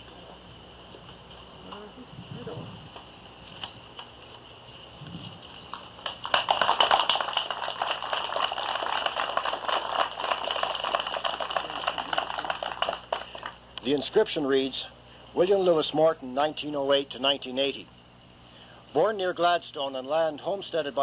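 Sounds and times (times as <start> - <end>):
audience applauding: 5.7 - 13.6.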